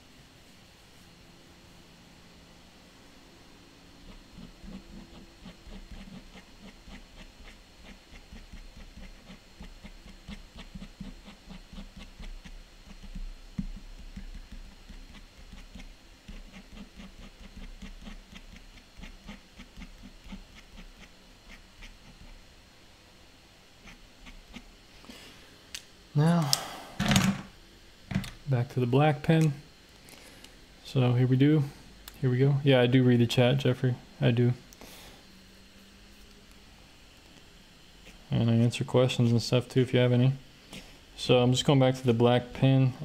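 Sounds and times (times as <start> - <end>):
pen strokes on paper: 4.0 - 22.4.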